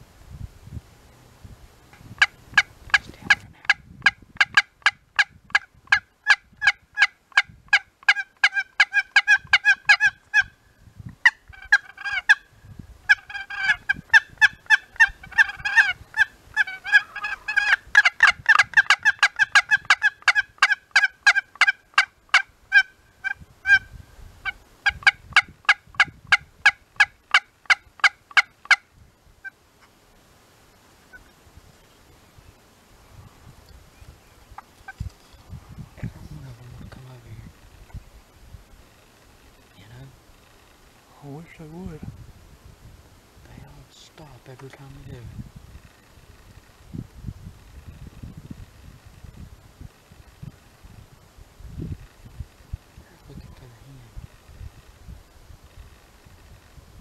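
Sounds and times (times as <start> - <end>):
turkey yelping: 4.0 - 10.5, 11.2 - 12.4, 13.1 - 28.8.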